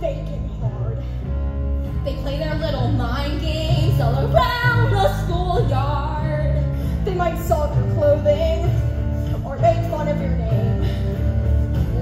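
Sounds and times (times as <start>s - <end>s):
backing music with strong bass: 0.0s - 12.0s
woman singing: 2.0s - 12.0s.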